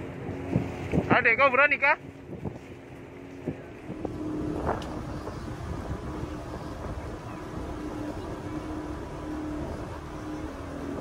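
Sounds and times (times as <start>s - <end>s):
motorboat engine running: 0.0s - 11.0s
water rushing along hull: 0.0s - 11.0s.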